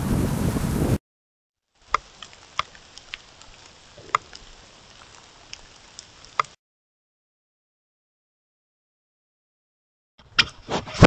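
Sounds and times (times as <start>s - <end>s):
faint steady hiss: 1.8s - 6.6s
sharp irregular ticks: 1.8s - 6.6s.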